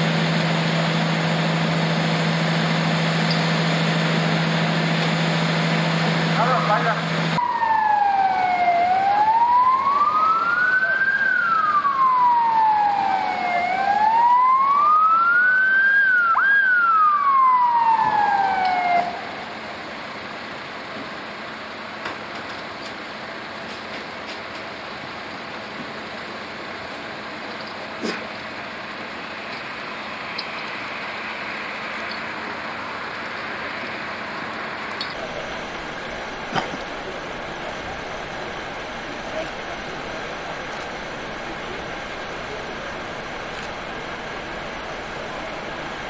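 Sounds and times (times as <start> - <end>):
emergency siren wailing: 0.0 - 19.9, 35.2 - 46.0
steady low background noise: 31.0 - 46.0.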